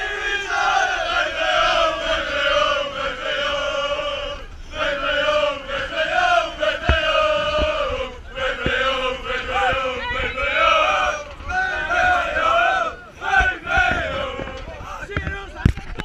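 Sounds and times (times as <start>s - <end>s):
men chanting in unison: 0.0s - 15.0s
dull thumps: 6.8s - 7.9s.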